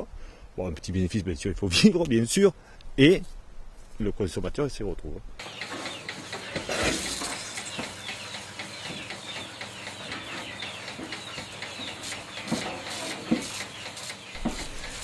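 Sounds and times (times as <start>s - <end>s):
small birds chirping: 5.4s - 15.0s
knocks: 14.4s - 14.8s.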